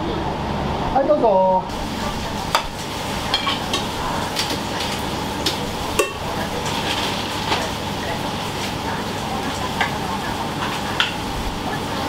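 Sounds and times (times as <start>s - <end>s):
dishes and utensils clinking: 2.5s - 7.7s.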